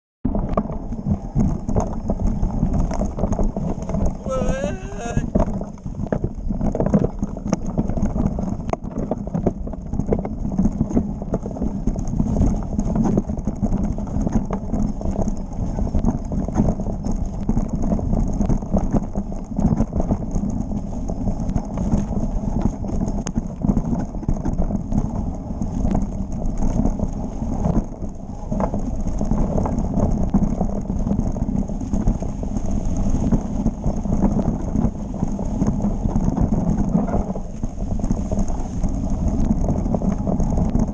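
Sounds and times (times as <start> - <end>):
mountain bike rattling downhill: 0.3 - 40.9.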